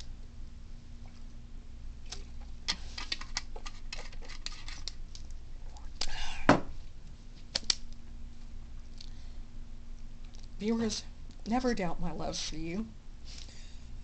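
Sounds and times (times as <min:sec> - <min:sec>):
air conditioner humming: 0:00.0 - 0:14.0.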